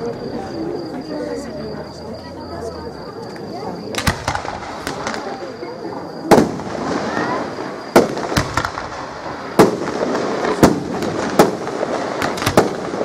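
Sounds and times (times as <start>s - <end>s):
fireworks crackling: 2.7s - 13.0s
fireworks bangs: 3.9s - 13.0s.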